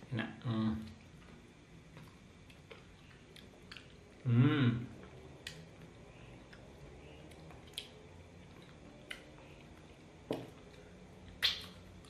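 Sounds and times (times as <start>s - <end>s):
wet mouth sounds eating: 4.9s - 12.0s.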